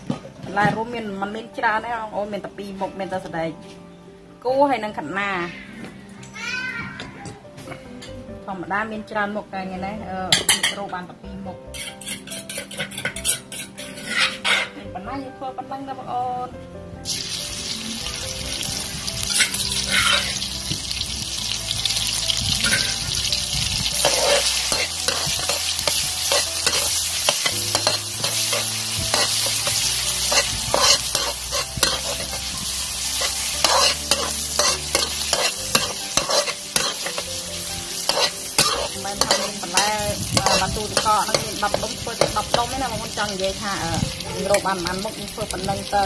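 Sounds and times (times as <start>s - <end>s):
food sizzling in hot oil: 11.7s - 14.7s, 17.0s - 46.0s
metal spatula scraping wok: 11.7s - 14.9s, 19.2s - 20.5s, 22.6s - 43.2s.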